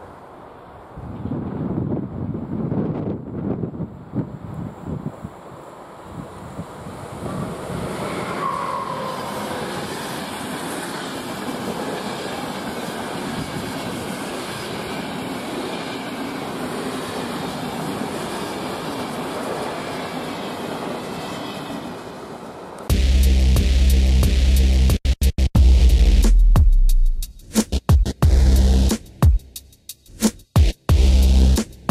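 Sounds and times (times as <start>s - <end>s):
train passing: 0.0s - 23.0s
wheels clickety-clack on rails: 7.3s - 22.0s.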